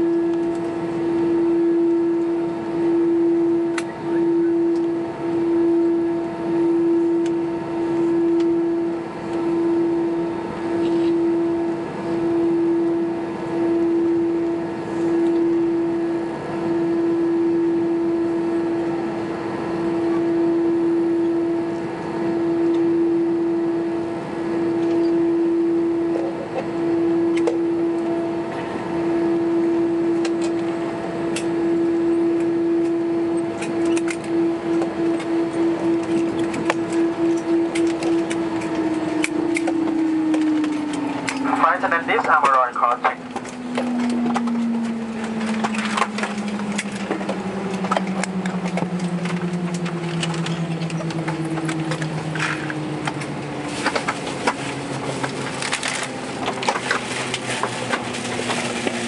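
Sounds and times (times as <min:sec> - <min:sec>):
droning cabin tone: 0:00.0 - 0:59.0
rushing cabin noise: 0:32.6 - 0:59.0.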